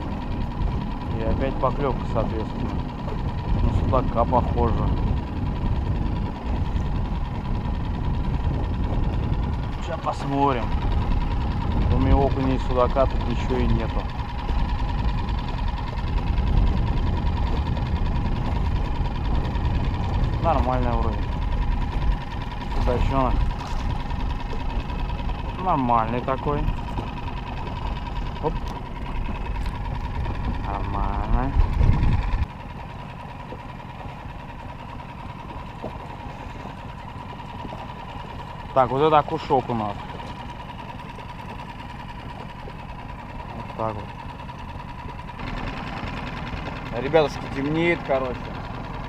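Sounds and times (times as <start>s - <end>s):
boat motor running: 0.0s - 49.0s.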